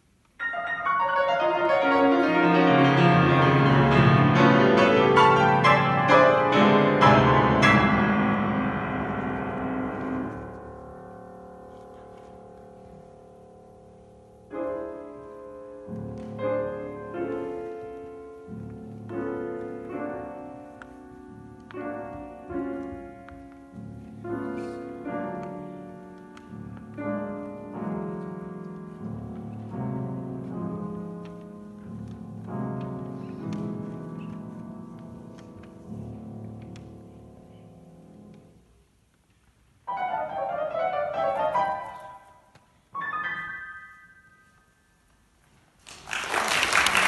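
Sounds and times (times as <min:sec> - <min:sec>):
grand piano chords: 0:00.0 - 0:39.1, 0:39.7 - 0:45.6.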